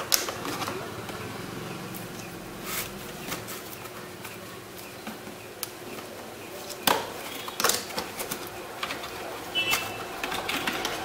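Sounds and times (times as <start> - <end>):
cardboard scrape: 2.6 - 3.7.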